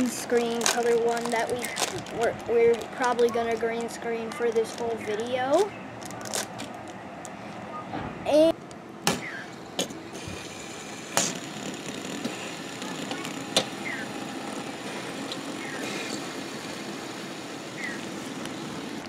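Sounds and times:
fidget spinners whirring: 0:00.0 - 0:05.7, 0:10.1 - 0:19.0.

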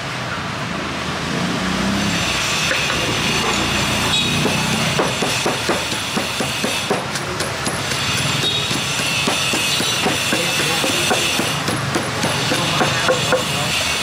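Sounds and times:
pestle pounding in clay mortar: 0:02.7 - 0:14.0.

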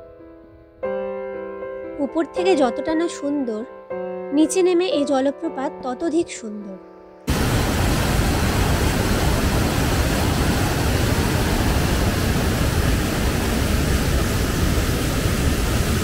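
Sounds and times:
waterfall rushing over rock: 0:07.3 - 0:16.0.

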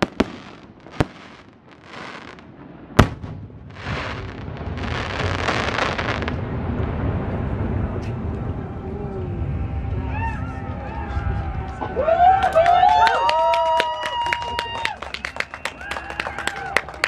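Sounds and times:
firework shells bursting: 0:00.0 - 0:06.4
firework crackle: 0:00.0 - 0:17.0.

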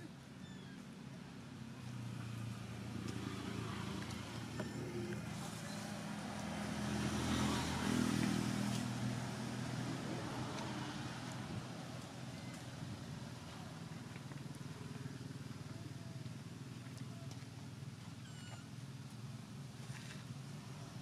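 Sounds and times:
motor vehicle engine passing: 0:01.8 - 0:15.4.

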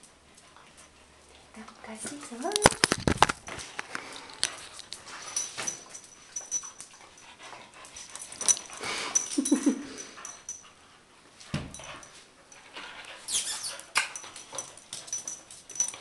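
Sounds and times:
clicks and scuffling: 0:01.6 - 0:07.0
dog whining: 0:13.2 - 0:14.0.

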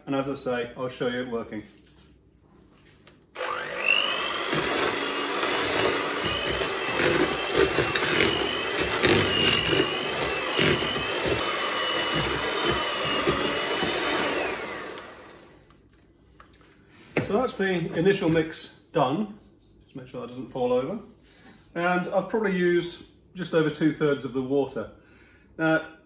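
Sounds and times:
electric hand mixer whining: 0:03.4 - 0:15.7.

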